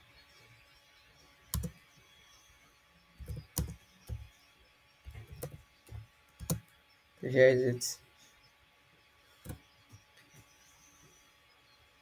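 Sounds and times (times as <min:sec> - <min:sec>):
typing on computer keyboard: 0:01.5 - 0:01.8, 0:03.2 - 0:04.3, 0:05.1 - 0:06.7.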